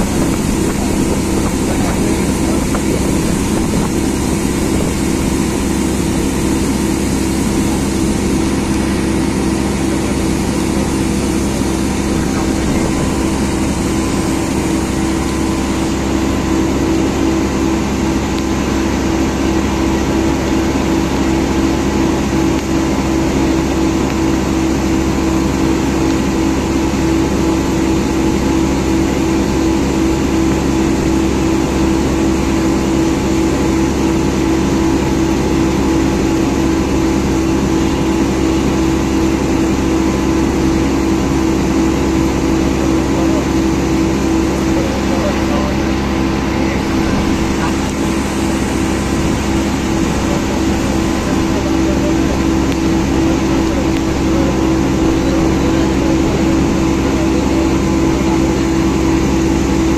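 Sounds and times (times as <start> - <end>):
motor boat engine drone: 0.0 - 59.9.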